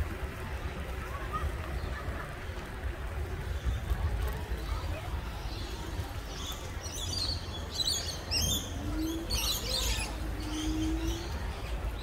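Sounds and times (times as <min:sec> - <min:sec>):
birds chirping and twittering: 0:04.6 - 0:12.0.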